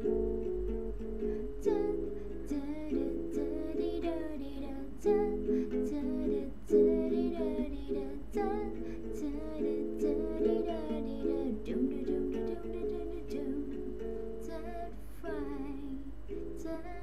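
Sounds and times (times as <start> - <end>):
ukulele strumming chords: 0.0 - 17.0
wordless singing: 1.6 - 17.0.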